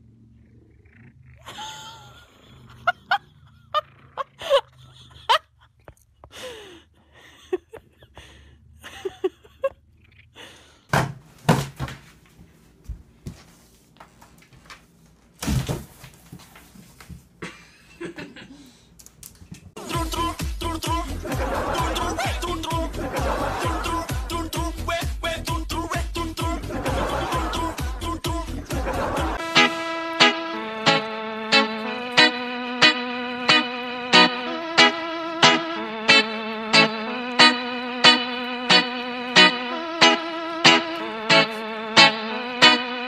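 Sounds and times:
woman laughing: 0:01.4 - 0:09.8, 0:21.2 - 0:24.1.

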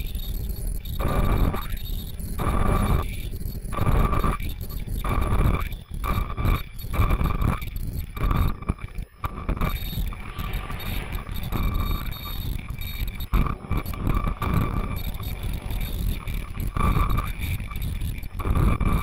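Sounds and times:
machine whine: 0:00.0 - 0:19.0
low rumbling noise: 0:09.2 - 0:19.0.

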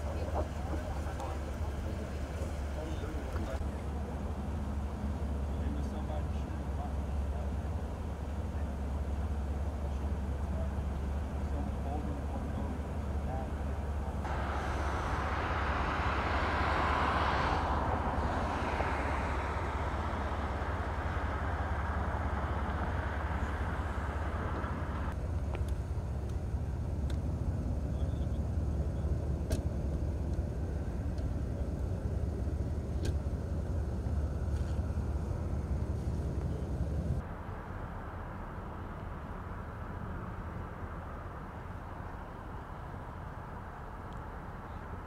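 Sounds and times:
car engine rumble: 0:00.0 - 0:45.0
tyre and road noise: 0:00.0 - 0:45.0.

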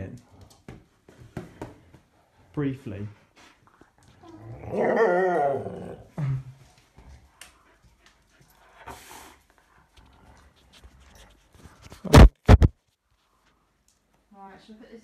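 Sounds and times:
dog moaning: 0:04.2 - 0:06.4.

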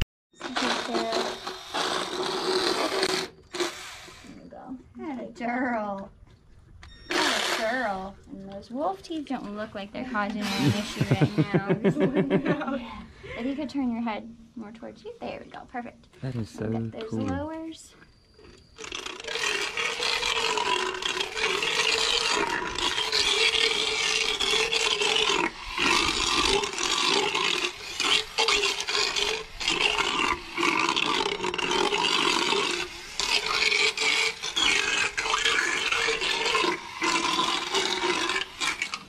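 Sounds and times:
motorized dental float grinding teeth: 0:00.4 - 0:04.5, 0:07.1 - 0:08.1, 0:10.2 - 0:11.7, 0:18.4 - 0:39.0.

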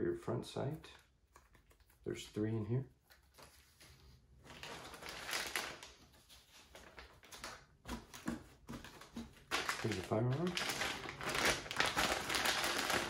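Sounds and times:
plastic bag crinkling: 0:04.5 - 0:07.7, 0:08.9 - 0:13.0.

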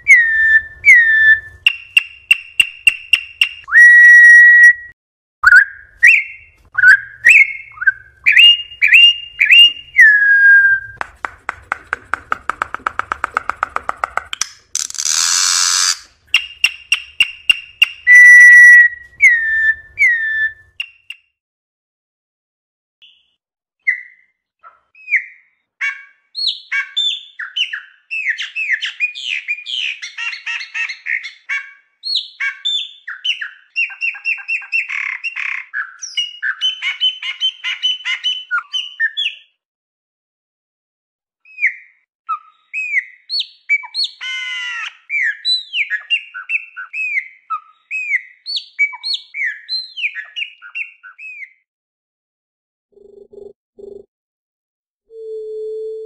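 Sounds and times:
bird singing: 0:00.0 - 0:11.0, 0:14.8 - 0:21.2, 0:41.5 - 0:51.6
bird harsh rasp: 0:14.7 - 0:16.2.

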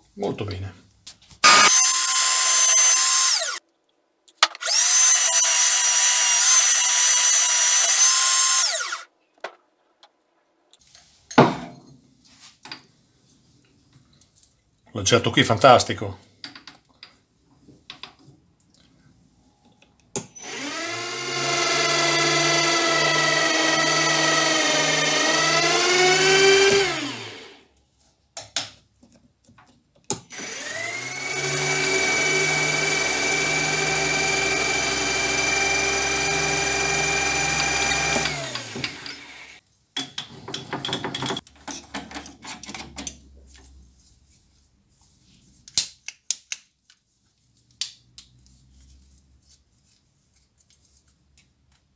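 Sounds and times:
lathe motor running: 0:01.4 - 0:03.6, 0:20.4 - 0:27.5, 0:30.4 - 0:39.6.

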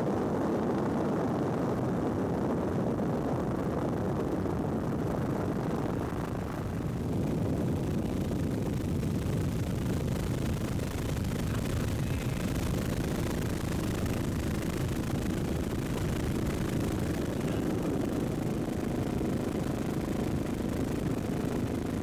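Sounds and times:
aircraft noise: 0:10.5 - 0:22.0.

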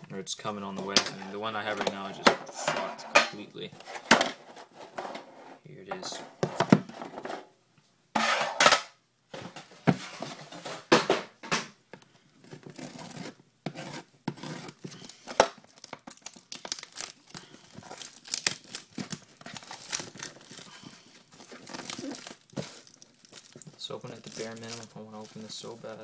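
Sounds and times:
plastic shrink wrap crinkling: 0:14.7 - 0:26.0.

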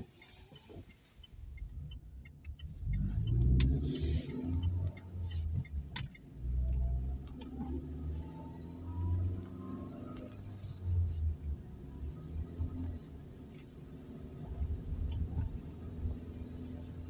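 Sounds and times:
car rumble on wet road: 0:00.0 - 0:17.0
sharp ticks: 0:01.2 - 0:03.8, 0:04.4 - 0:07.6.

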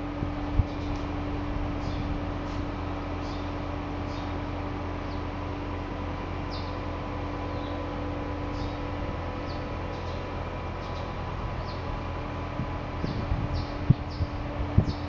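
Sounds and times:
crane engine droning: 0:00.0 - 0:15.0
faint steady whine: 0:00.0 - 0:15.0
small bird chirping: 0:01.8 - 0:02.2, 0:03.2 - 0:04.4, 0:06.5 - 0:06.8, 0:07.5 - 0:07.8, 0:08.5 - 0:08.8, 0:09.4 - 0:11.9, 0:13.0 - 0:15.0.

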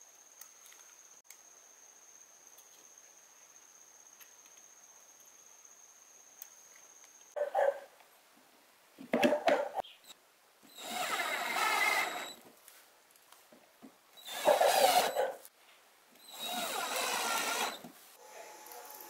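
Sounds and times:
cordless drill driving a screw: 0:10.8 - 0:12.4, 0:14.2 - 0:15.2, 0:16.2 - 0:17.9.

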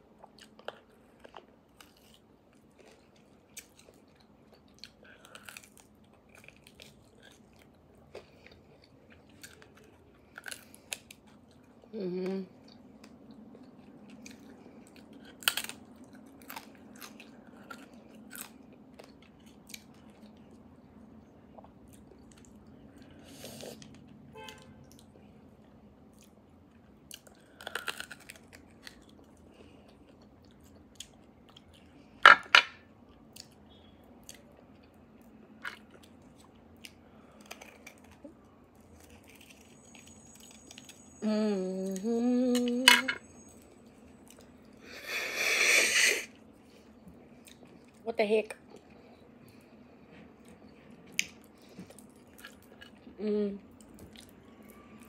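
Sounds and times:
soft chewing and wet clicks: 0:00.0 - 0:11.9, 0:12.5 - 0:23.2, 0:23.8 - 0:32.2, 0:33.0 - 0:41.2, 0:43.3 - 0:44.8, 0:46.4 - 0:55.0
person humming: 0:12.0 - 0:12.5, 0:41.2 - 0:43.2, 0:53.2 - 0:53.6.

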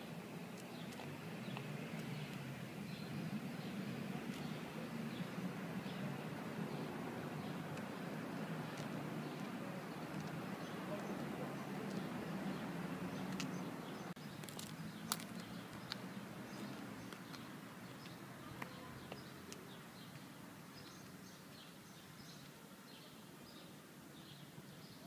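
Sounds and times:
small birds chirping: 0:00.0 - 0:25.0
steady background noise: 0:00.0 - 0:25.0
high heels clicking on paving: 0:00.5 - 0:02.5, 0:14.3 - 0:20.3.

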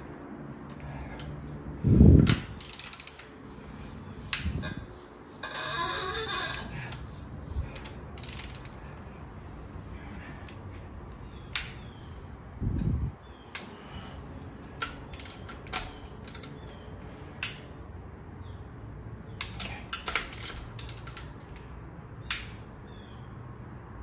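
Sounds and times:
torque wrench clicks and ratchet clatter: 0:02.2 - 0:03.3, 0:14.8 - 0:16.6, 0:19.4 - 0:21.7.

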